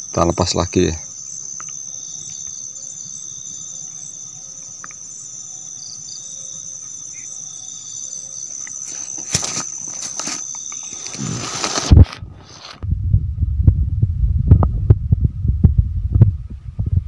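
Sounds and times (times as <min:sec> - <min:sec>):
crickets trilling: 0:00.0 - 0:12.8
pulsing insect call: 0:00.0 - 0:12.8.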